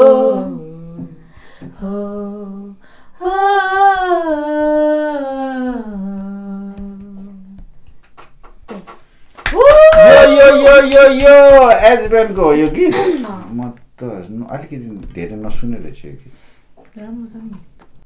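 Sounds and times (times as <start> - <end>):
woman humming a melody: 0.0 - 7.6.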